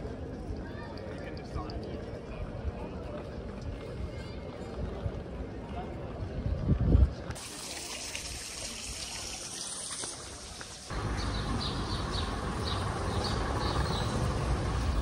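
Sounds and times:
outdoor background: 0:00.0 - 0:15.0
fountain water splashing: 0:07.4 - 0:15.0.

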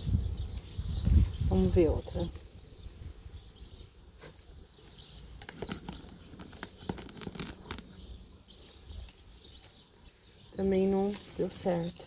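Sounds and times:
faint birds chirping: 0:00.0 - 0:12.0
roots tearing from soil: 0:05.3 - 0:08.0.

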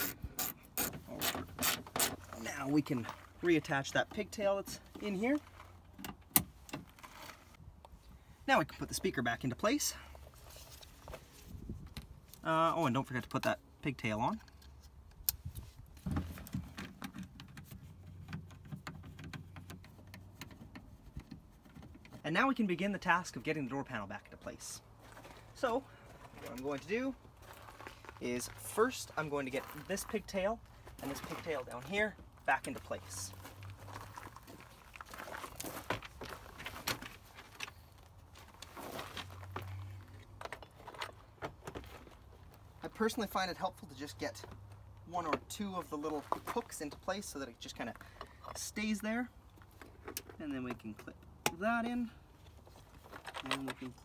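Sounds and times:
hand screwdriver screwing: 0:00.0 - 0:02.2.

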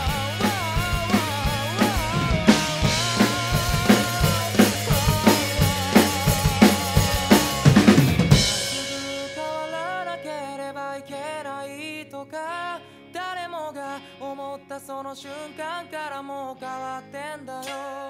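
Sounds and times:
fast drum fill: 0:00.0 - 0:09.8
rock drum kit playing: 0:00.0 - 0:11.2
band recording with lead melody: 0:00.0 - 0:13.2
crash cymbal ringing: 0:08.0 - 0:11.4.

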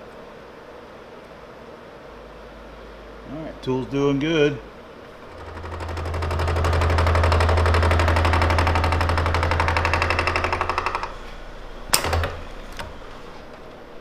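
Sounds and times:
milling machine cutting hum: 0:05.2 - 0:14.0
knock: 0:05.6 - 0:11.2.

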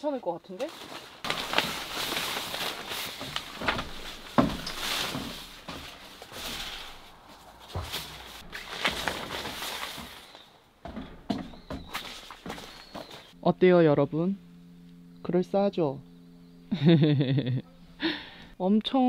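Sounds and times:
plastic sheet rustling and crinkling: 0:00.5 - 0:10.5
sharp knocks: 0:03.2 - 0:06.0, 0:10.8 - 0:13.1.

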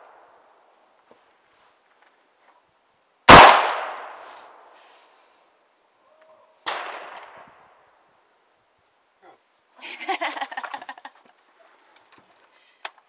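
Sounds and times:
rifle gunshots: 0:03.3 - 0:04.2, 0:06.7 - 0:07.3.

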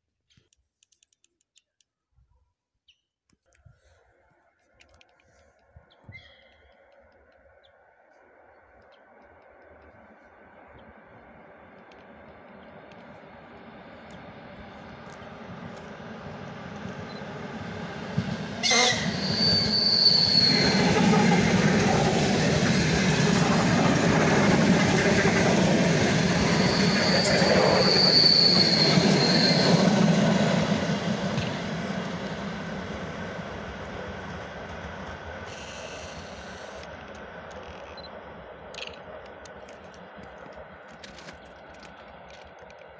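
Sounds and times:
train rumble and wheel clatter: 0:05.0 - 0:42.9
high train squeal: 0:17.0 - 0:33.2, 0:35.2 - 0:38.2.

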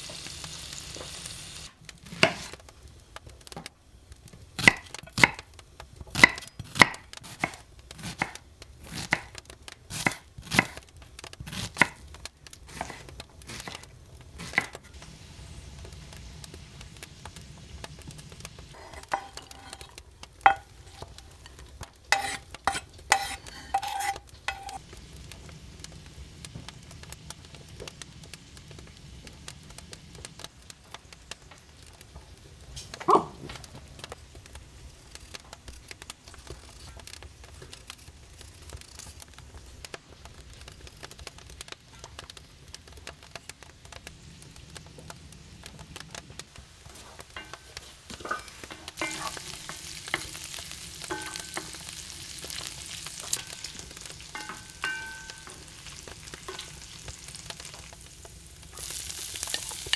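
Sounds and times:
knife chopping on cutting board: 0:22.1 - 0:24.8.

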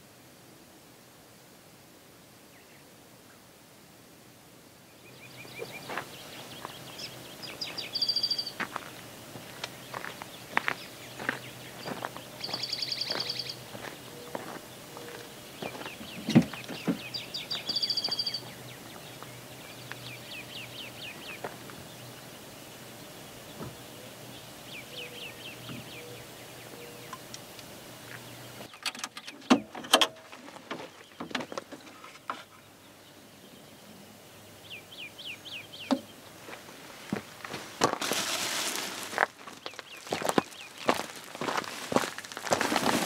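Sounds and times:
birds chirping: 0:04.8 - 0:43.0
plastic bag crinkling: 0:37.8 - 0:43.0.

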